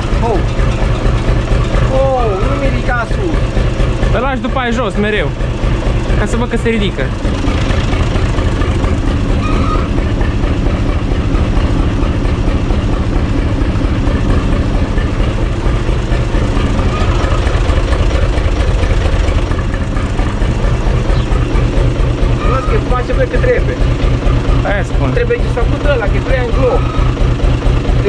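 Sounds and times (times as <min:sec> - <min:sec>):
tractor diesel engine idling: 0:00.0 - 0:28.0.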